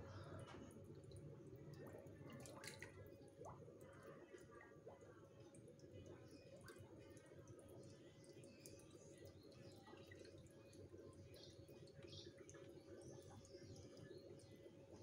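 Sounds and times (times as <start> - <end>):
water dripping into pond: 0.0 - 15.0.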